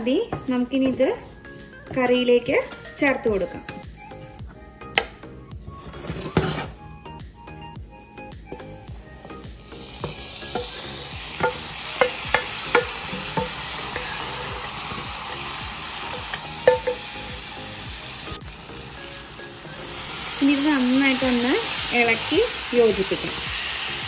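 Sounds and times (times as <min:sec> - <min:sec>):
wooden spatulas scraping a pan: 0:05.7 - 0:06.8
oil sizzling: 0:08.5 - 0:24.0
spatula tapping against pan: 0:10.0 - 0:14.6, 0:16.1 - 0:17.5.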